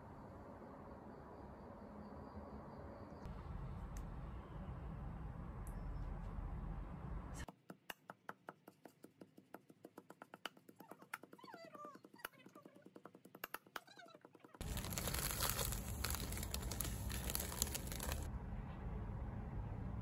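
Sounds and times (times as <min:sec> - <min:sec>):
leaves crushed and ground: 0:14.6 - 0:18.3.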